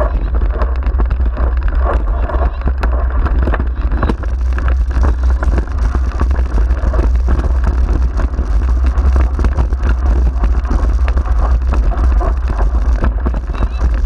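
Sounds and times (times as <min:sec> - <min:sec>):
heavy low rumble: 0:00.0 - 0:14.0.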